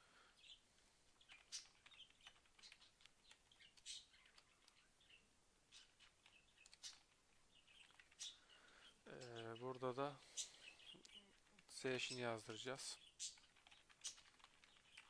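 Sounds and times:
keyboard typing clicks: 13.3 - 15.0.

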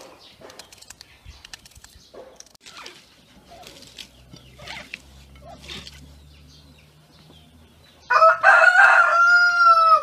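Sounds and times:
birds chirping: 0.0 - 10.0
onion being peeled by hand: 0.4 - 6.2.

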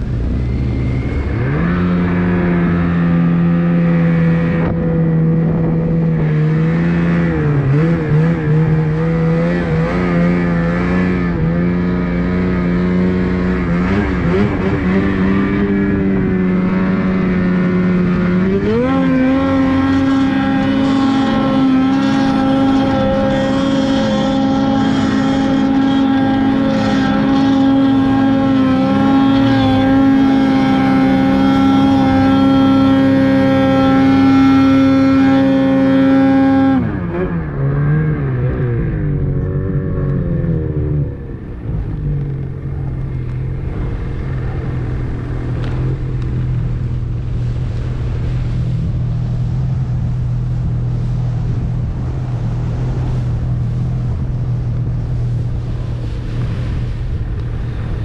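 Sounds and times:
snowmobile engine revving: 0.0 - 58.0
snowmobile engine idling: 12.4 - 35.3.

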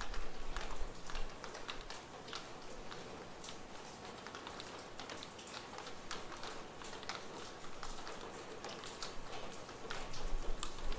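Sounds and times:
light rain hiss: 0.0 - 10.9
raindrops tapping: 0.0 - 10.9.

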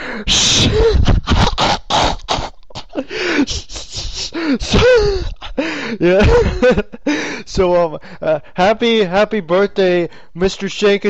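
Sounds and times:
person making squeaky noises: 0.5 - 5.4.

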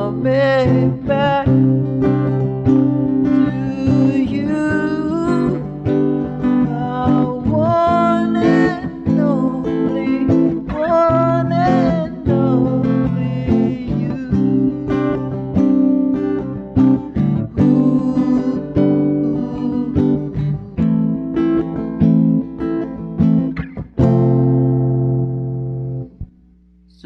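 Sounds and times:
man singing: 0.0 - 2.3, 3.2 - 15.5, 17.2 - 21.1
acoustic guitar strumming: 0.0 - 27.0.

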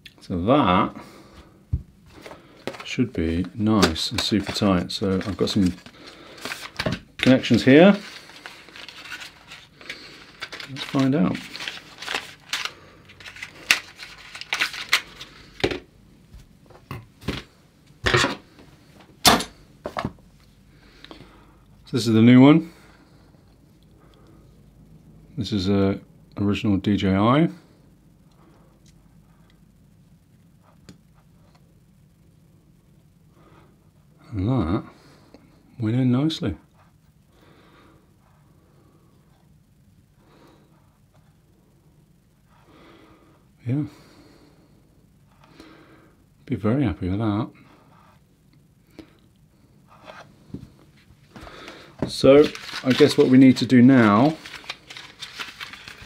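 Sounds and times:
low steady hum: 0.0 - 56.0
man breathing faintly: 0.9 - 2.8, 5.8 - 6.8, 20.6 - 21.8, 36.7 - 46.4, 47.5 - 52.8.

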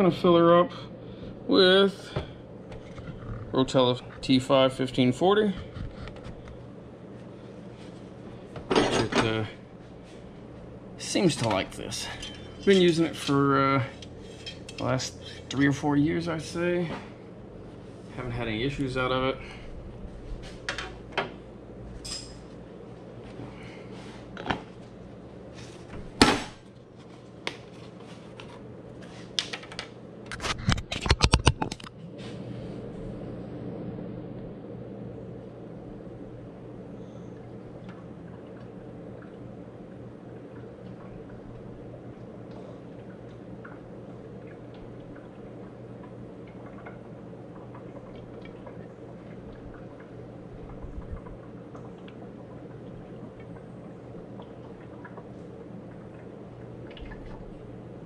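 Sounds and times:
constant low hum: 0.0 - 58.0
small ticks and drips: 37.0 - 57.9
oil trickling through funnel: 37.0 - 58.0.

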